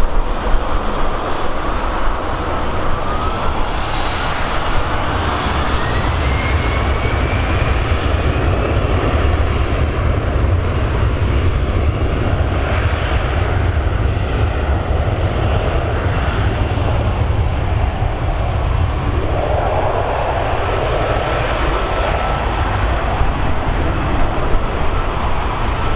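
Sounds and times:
jet engines roaring: 0:00.0 - 0:25.9.

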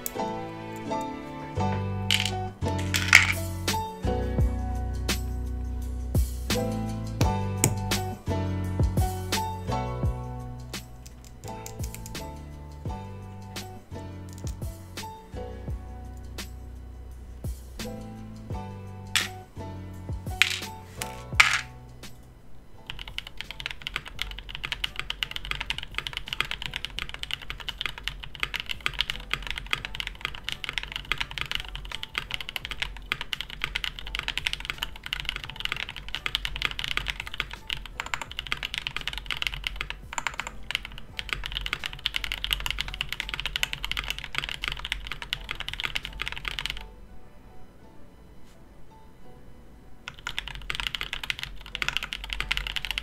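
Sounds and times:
fast mechanical keyboard typing: 0:02.1 - 0:03.4, 0:11.1 - 0:12.2, 0:20.4 - 0:21.7, 0:22.9 - 0:46.8, 0:50.1 - 0:53.0.

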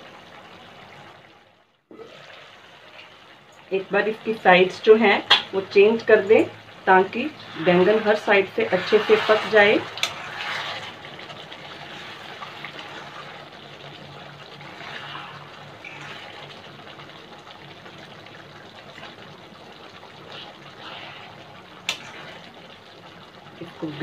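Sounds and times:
gravy bubbling: 0:00.0 - 0:24.0
ladle stirring wet food: 0:07.4 - 0:23.6.

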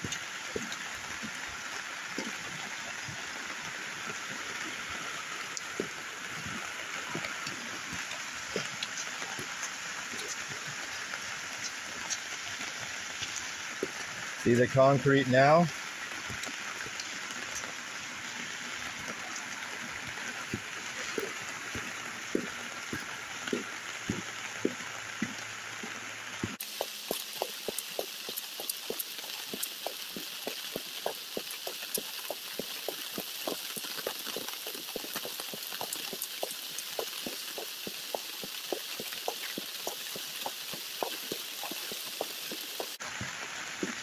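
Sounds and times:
rain hiss: 0:00.0 - 0:44.0
raindrops tapping: 0:00.0 - 0:44.0.

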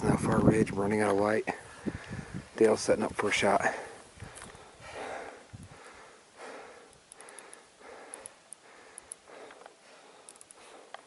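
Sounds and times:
person breathing hard: 0:03.6 - 0:11.0
faint small clicks: 0:06.9 - 0:11.0.

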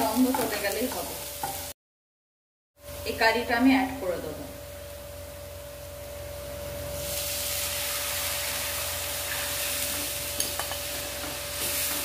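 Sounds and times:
batter sizzling in hot oil: 0:04.8 - 0:12.0.

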